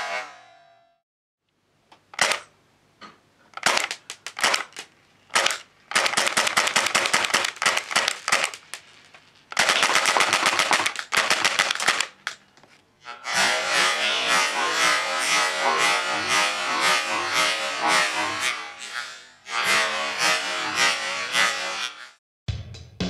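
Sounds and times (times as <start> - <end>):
airsoft gun full-auto bursts: 2.2 - 2.5, 3.6 - 8.7, 9.5 - 12.2
airsoft gun single shots: 2.2 - 2.5, 3.6 - 8.6.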